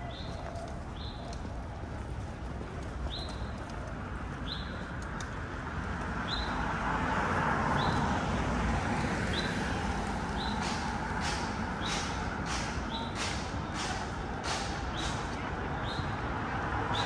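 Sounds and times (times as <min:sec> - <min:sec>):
street traffic: 0:00.0 - 0:17.0
vehicle passing: 0:05.5 - 0:12.6.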